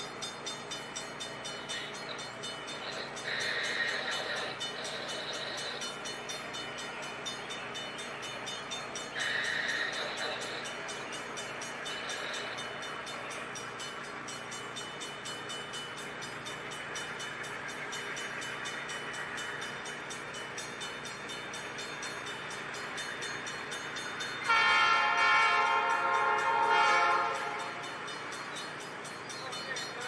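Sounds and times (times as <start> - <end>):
diesel locomotive engine rumble: 0.0 - 30.0
locomotive air horn blast: 24.5 - 28.0.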